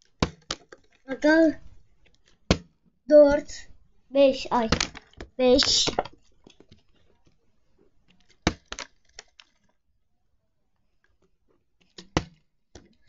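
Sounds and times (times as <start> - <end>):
plastic bottle clicks and knocks: 0.1 - 0.8, 2.5 - 2.8, 4.7 - 6.7, 8.3 - 9.5, 11.9 - 13.0.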